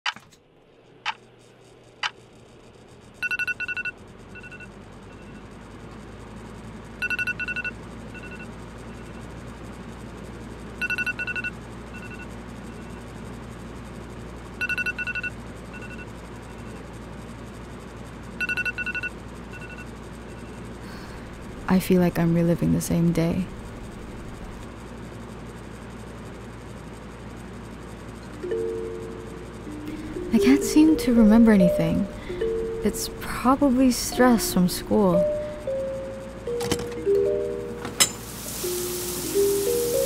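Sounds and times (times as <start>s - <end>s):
low steady hum: 0.2s - 40.0s
electronic alarm beeping: 3.2s - 5.4s, 7.0s - 9.2s, 10.8s - 13.0s, 14.6s - 16.1s, 18.4s - 20.6s.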